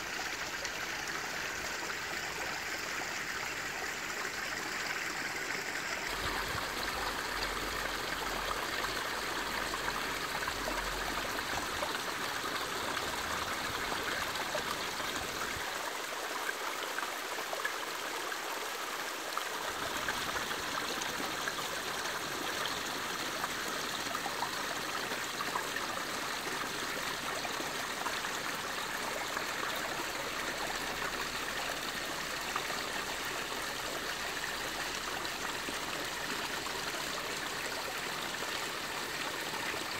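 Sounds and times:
fountain water splashing: 6.1 - 15.7.

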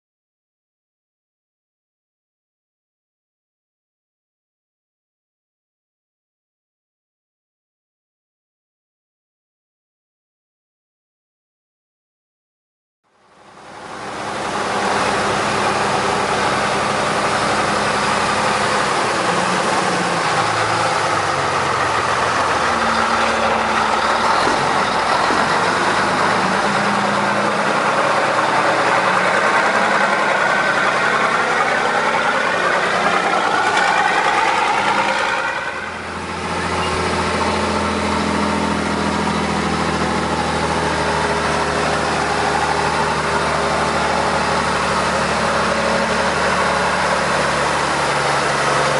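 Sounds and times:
truck engine revving: 13.4 - 48.9.

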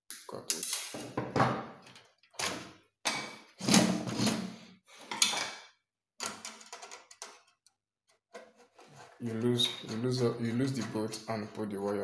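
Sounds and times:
knocks and clatters on bench: 0.8 - 4.4, 5.1 - 7.6.

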